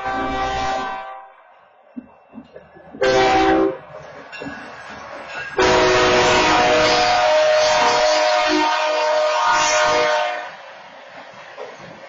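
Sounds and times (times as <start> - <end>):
locomotive air horn blasts: 0.0 - 1.3, 3.0 - 3.9, 5.6 - 10.6
train rumbling and knocking: 0.0 - 12.0.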